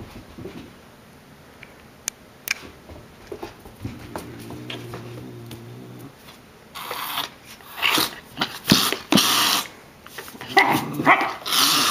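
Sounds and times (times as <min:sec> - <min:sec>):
low growl: 0:03.8 - 0:06.2
cat hissing: 0:04.0 - 0:06.2, 0:06.8 - 0:09.8, 0:10.5 - 0:11.9.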